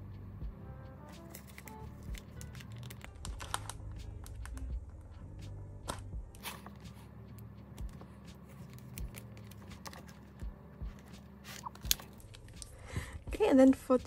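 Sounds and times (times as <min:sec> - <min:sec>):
plastic sleeves clicking and tapping: 0:01.4 - 0:04.7.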